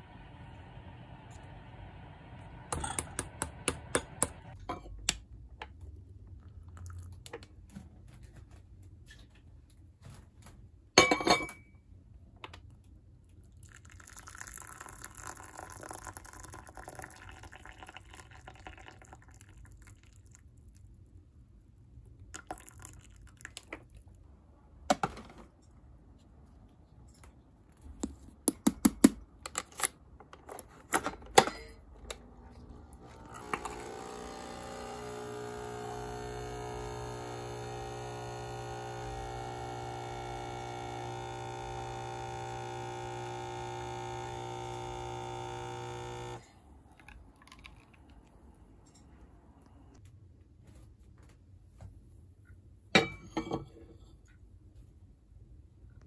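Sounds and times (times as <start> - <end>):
liquid pouring: 13.6 - 20.8, 22.4 - 23.6.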